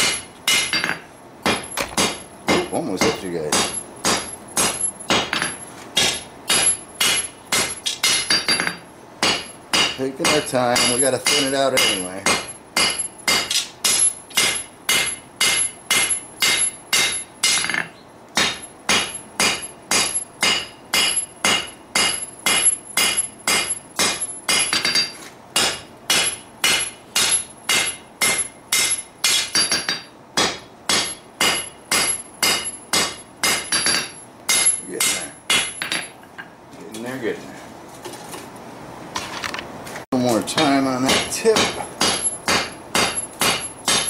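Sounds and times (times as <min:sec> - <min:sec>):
hammer striking steel on anvil: 0:00.0 - 0:36.2, 0:40.5 - 0:44.0.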